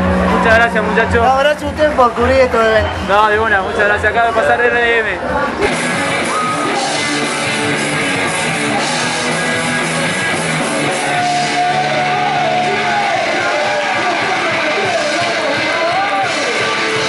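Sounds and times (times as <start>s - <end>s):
punk rock band playing: 5.2s - 17.0s.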